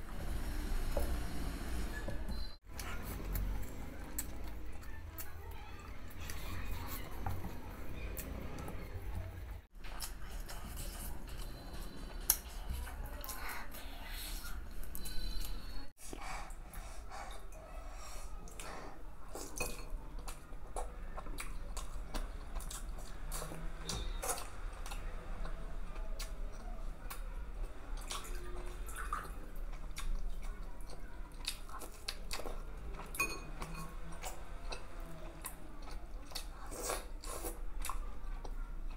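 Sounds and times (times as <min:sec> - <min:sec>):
wet chewing and lip-smacking: 0:28.0 - 0:38.9.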